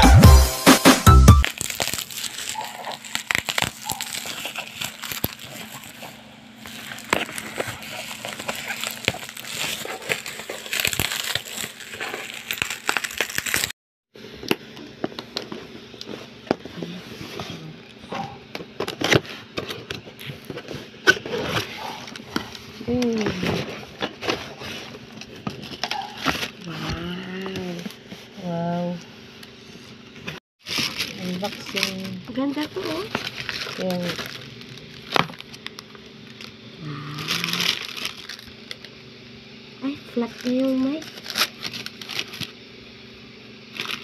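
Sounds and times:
bubble wrap crinkling: 1.4s - 13.8s, 18.9s - 28.4s, 30.6s - 39.0s, 40.0s - 44.0s.

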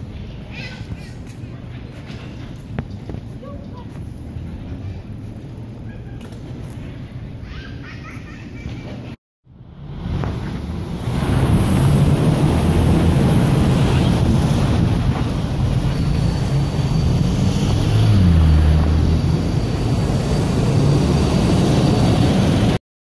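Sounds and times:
road noise: 0.0s - 22.8s
traffic engine rumble: 0.0s - 22.8s.

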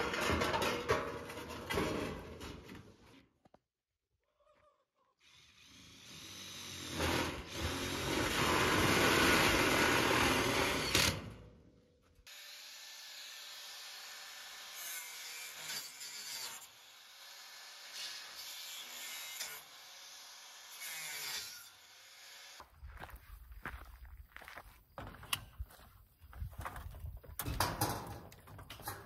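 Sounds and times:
power drill driving screw: 5.4s - 11.3s.

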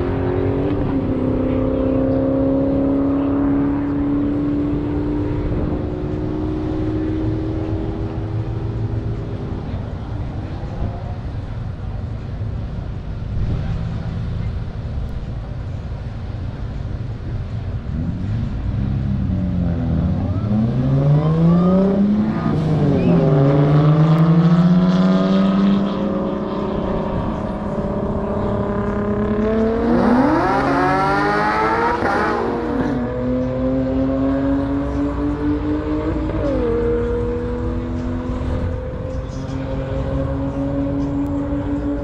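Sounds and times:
car engine accelerating: 17.4s - 42.0s.

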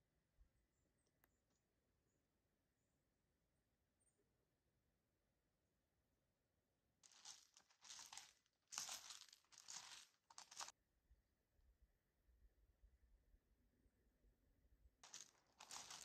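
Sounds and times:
footsteps on gravel: 7.0s - 10.7s, 15.0s - 16.0s.

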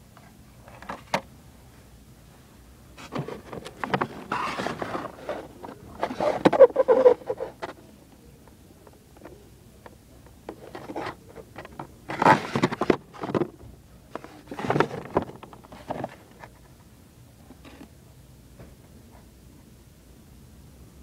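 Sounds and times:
plastic packaging crinkling and scraping: 3.0s - 7.8s, 10.5s - 16.7s.

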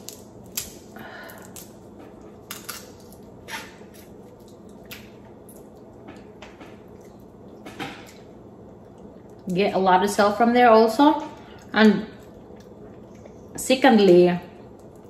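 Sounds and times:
crab shell cracking by hand: 0.0s - 8.3s
faint steady hum: 0.0s - 15.0s.

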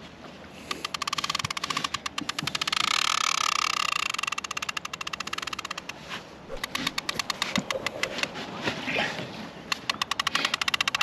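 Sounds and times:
fishing reel clicking rapidly: 0.7s - 6.0s, 6.6s - 7.9s, 9.8s - 11.0s.

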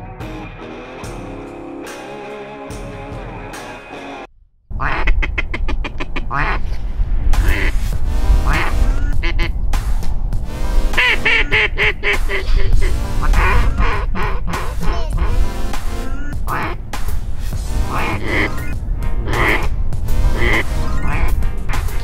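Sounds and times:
background music: 0.0s - 4.3s, 7.3s - 22.0s
low rumble: 4.3s - 22.0s
duck quacking: 4.8s - 6.8s, 7.4s - 9.6s, 10.8s - 16.9s, 17.6s - 22.0s.

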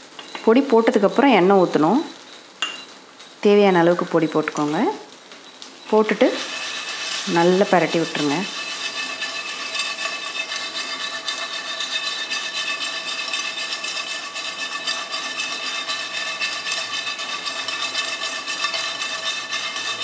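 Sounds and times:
food sizzling in oil: 0.0s - 20.0s
spatula stirring in pan: 6.1s - 20.0s.

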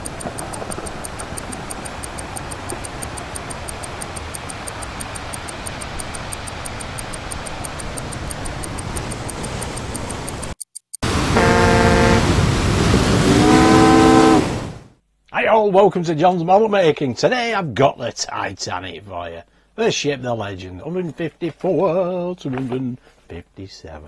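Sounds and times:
intro music with fast ticking: 0.0s - 11.0s
ship's steam whistle blast: 11.3s - 12.3s, 13.2s - 14.6s.

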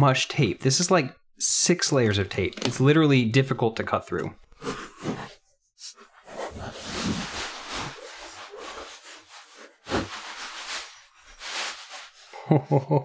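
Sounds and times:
cardboard and plastic rustling: 6.4s - 12.2s.

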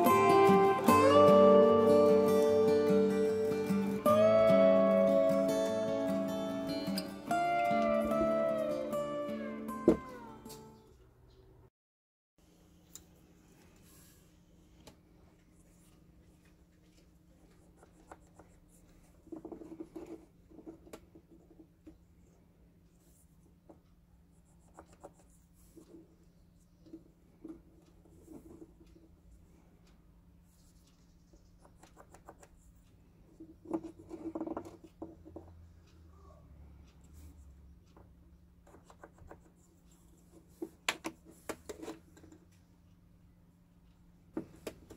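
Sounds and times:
faint steady hum: 12.4s - 44.9s.

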